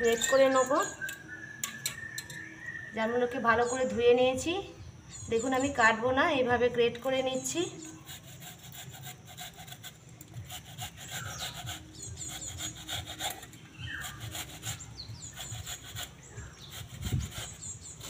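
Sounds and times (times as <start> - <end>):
fruit rasping on metal grater: 0.0 - 1.0, 7.7 - 18.0.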